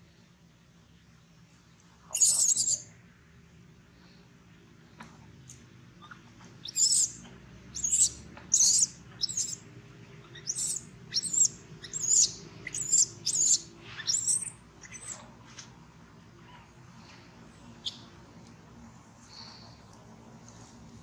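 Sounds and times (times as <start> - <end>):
baby monkey shrieking: 2.2 - 2.8, 6.0 - 7.1, 7.8 - 9.6, 10.3 - 15.2.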